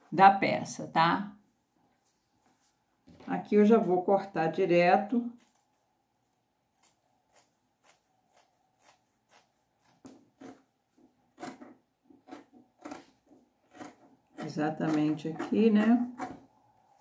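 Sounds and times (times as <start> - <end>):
scissors snipping fabric: 6.7 - 10.7, 11.3 - 16.4.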